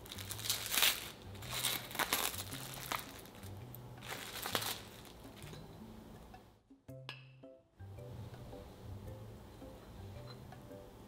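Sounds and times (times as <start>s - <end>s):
aluminium foil crinkling: 0.0s - 5.6s.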